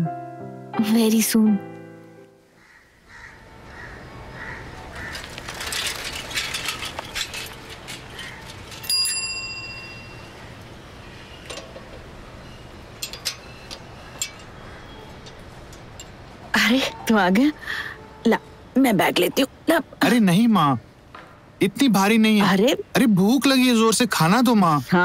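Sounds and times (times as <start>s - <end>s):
bicycle clicks and rattles: 4.8s - 16.5s
bicycle bell ringing: 8.8s - 10.5s.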